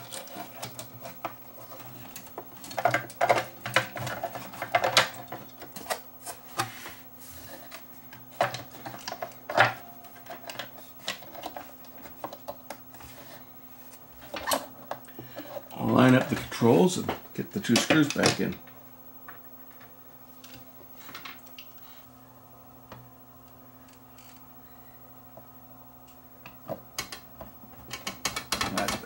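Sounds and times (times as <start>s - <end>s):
plastic and metal parts clattering: 0.0s - 13.4s, 14.2s - 18.8s, 27.9s - 29.0s
faint steady hum: 0.0s - 29.0s.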